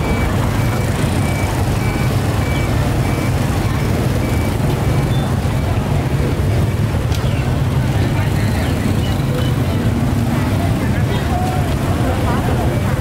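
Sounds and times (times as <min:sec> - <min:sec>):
short high beeps: 0:00.0 - 0:05.8
vehicle engine rumbling: 0:00.0 - 0:13.0.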